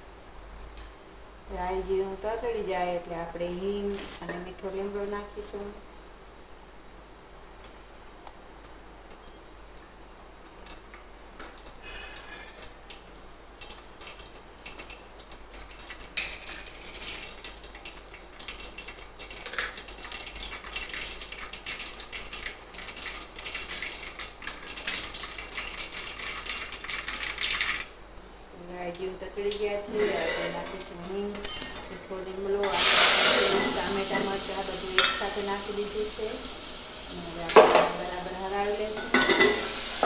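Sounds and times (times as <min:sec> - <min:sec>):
seeds popping in hot oil: 0:32.6 - 0:40.0.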